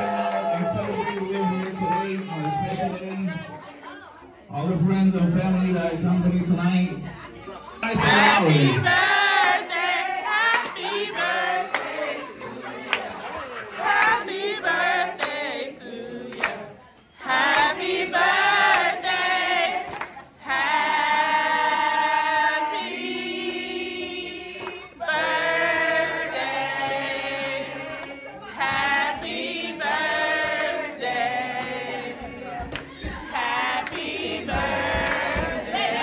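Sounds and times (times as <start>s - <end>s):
group of people singing: 7.8s - 36.0s.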